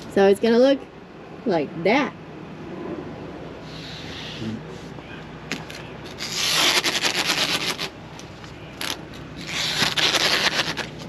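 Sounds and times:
tape ripping off roll: 0:05.5 - 0:07.9, 0:08.8 - 0:11.0.

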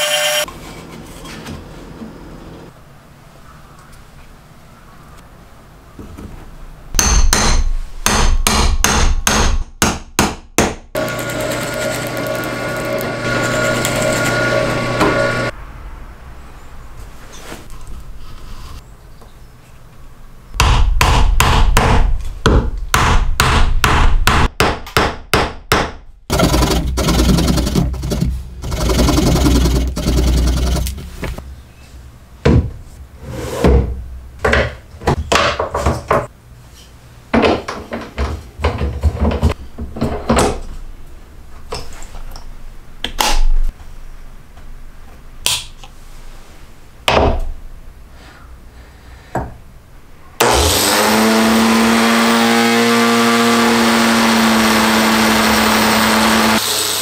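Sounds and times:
hammer driving wooden dowel: 0:20.6 - 0:31.4.

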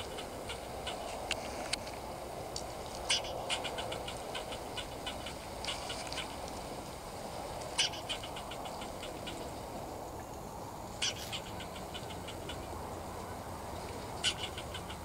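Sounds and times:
squirrel chucking alarm calls: 0:00.0 - 0:01.3, 0:03.0 - 0:06.5, 0:07.6 - 0:09.8, 0:10.8 - 0:13.4, 0:14.0 - 0:15.0
squirrel harsh call: 0:00.0 - 0:01.3, 0:03.0 - 0:06.4, 0:07.7 - 0:09.6, 0:10.9 - 0:13.0, 0:14.0 - 0:15.0.

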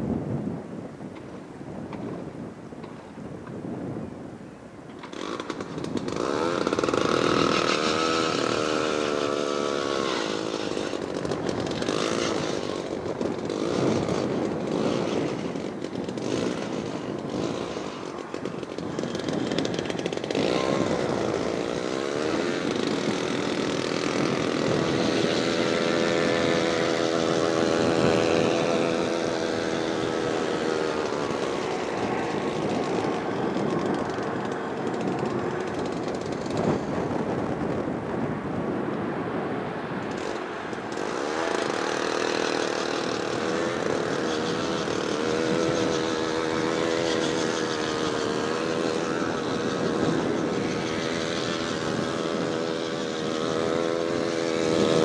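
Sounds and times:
small gasoline engine revving: 0:04.9 - 0:38.7, 0:40.0 - 0:55.0.

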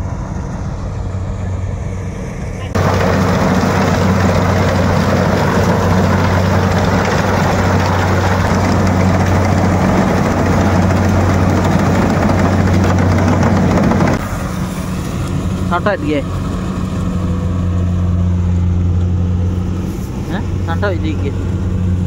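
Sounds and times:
combine harvester engine drone: 0:00.0 - 0:22.0
threshing drum rattle: 0:02.8 - 0:14.2.

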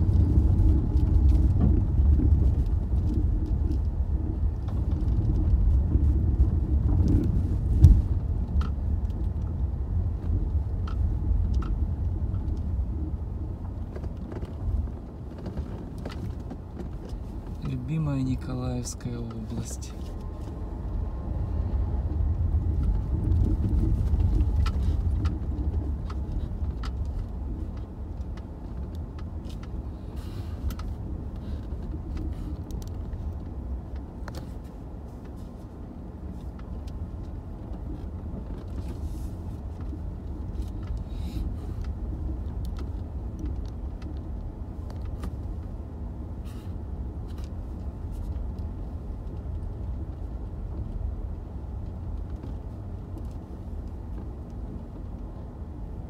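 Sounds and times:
knocks and rattles over bumps: 0:00.0 - 0:35.6
car engine and tyre rumble: 0:00.0 - 0:56.0.

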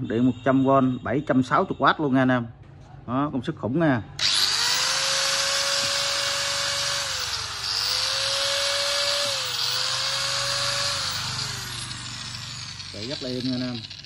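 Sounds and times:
angle grinder motor whine: 0:04.2 - 0:14.0.

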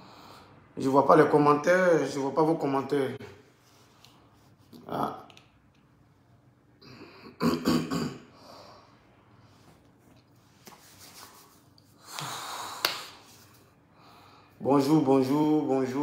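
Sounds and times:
man breathing: 0:00.0 - 0:00.8, 0:08.3 - 0:09.8, 0:12.0 - 0:14.6.

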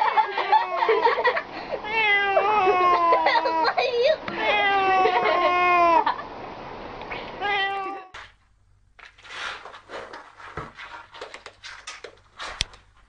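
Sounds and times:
cat meowing: 0:01.8 - 0:06.1, 0:07.4 - 0:08.2
cardboard box scraping floor: 0:09.0 - 0:13.0.

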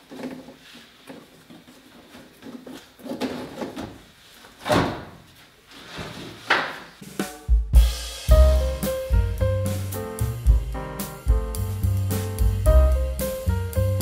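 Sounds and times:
knocks and scrapes of handling: 0:00.0 - 0:04.6.

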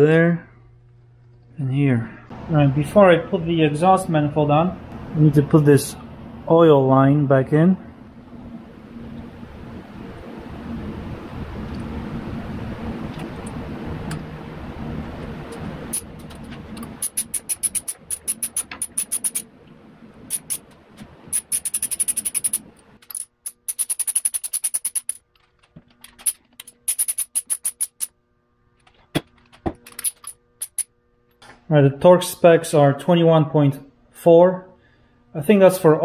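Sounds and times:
ratchet wrench clicking: 0:16.9 - 0:19.4, 0:20.3 - 0:20.6, 0:21.3 - 0:25.2, 0:26.2 - 0:28.1, 0:29.9 - 0:30.9.

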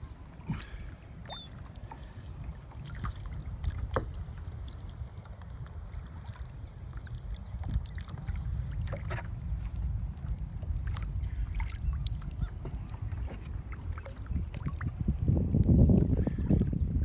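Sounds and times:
kayak paddles splashing: 0:00.0 - 0:17.0
steady low rumble: 0:00.0 - 0:17.0.

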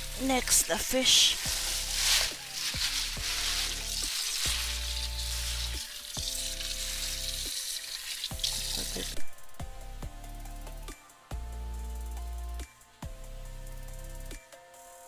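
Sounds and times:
music with bass beat: 0:00.0 - 0:07.6, 0:08.2 - 0:15.0
water running into metal sink: 0:00.6 - 0:09.2.

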